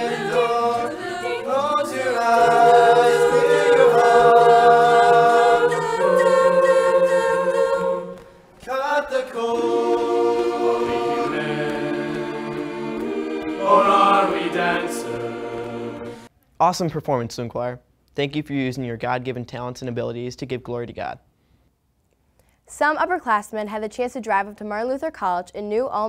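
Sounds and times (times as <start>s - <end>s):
choir singing in harmony: 0.0s - 16.3s.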